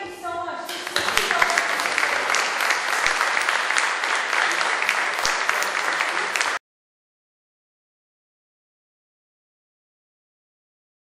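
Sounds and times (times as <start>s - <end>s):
audience applauding: 0.7s - 6.6s.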